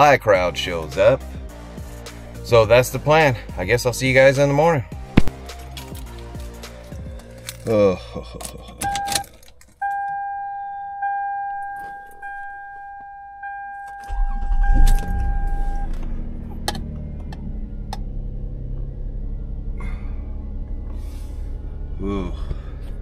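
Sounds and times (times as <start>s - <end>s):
car engine idling: 0.0s - 9.8s, 14.1s - 23.0s
car engine cranking and starting: 0.2s - 10.1s, 13.8s - 23.0s
keys jangling: 5.6s - 9.8s
car warning chime dinging: 8.8s - 16.3s.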